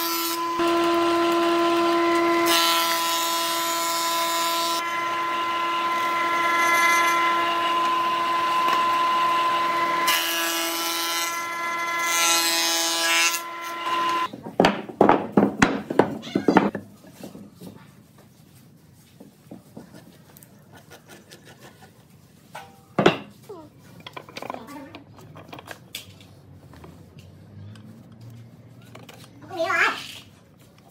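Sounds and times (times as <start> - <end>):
board being planed rasping: 0.1 - 14.3
planer humming: 0.3 - 12.1.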